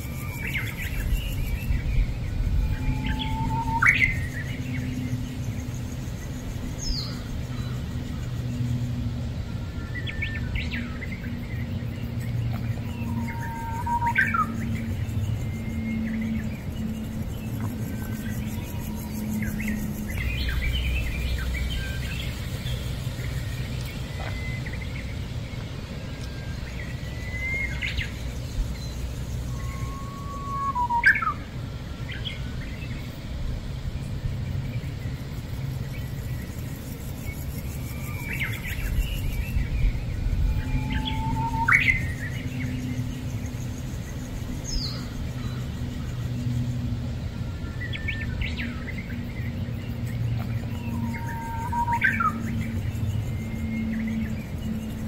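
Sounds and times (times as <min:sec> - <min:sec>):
birds chirping: 0:00.0 - 0:34.0, 0:34.6 - 0:55.0
steady low hum: 0:00.0 - 0:55.0.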